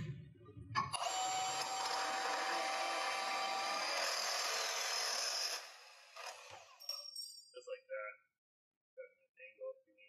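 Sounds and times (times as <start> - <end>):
band saw cutting metal tube: 1.0 - 6.9.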